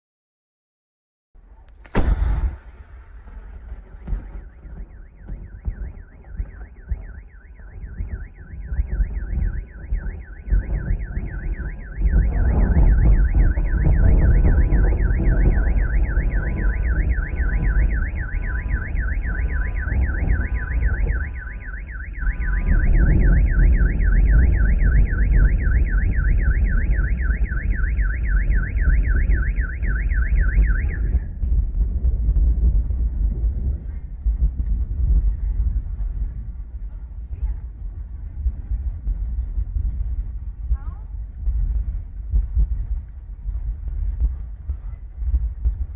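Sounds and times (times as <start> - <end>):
wind rumbling on microphone: 1.4 - 45.9
car alarm warbling: 3.9 - 31.3.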